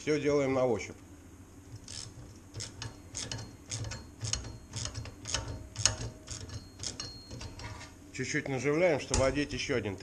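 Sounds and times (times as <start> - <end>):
ratchet wrench clicking: 1.8 - 7.5.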